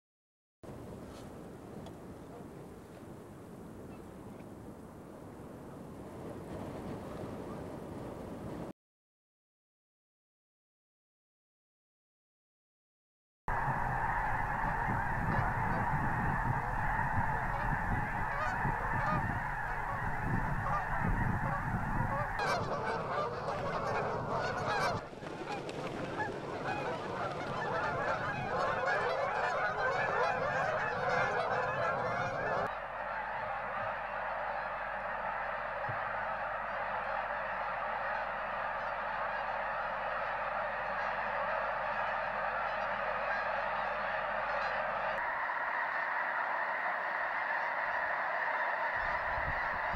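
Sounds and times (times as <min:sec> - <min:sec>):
geese honking: 0:13.5 - 0:49.9.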